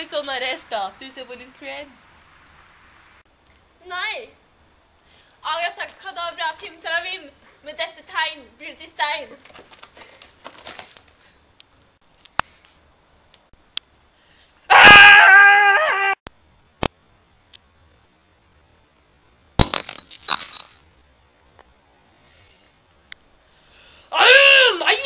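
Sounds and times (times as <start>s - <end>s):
sharp crack and crash: 9.4s - 11.2s, 19.6s - 21.0s
loud stepped wail: 14.7s - 16.2s.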